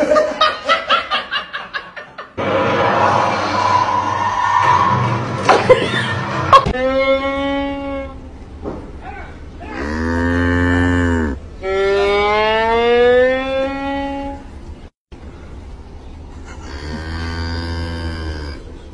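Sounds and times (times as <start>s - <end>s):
cattle mooing: 9.6s - 14.5s, 16.6s - 18.7s.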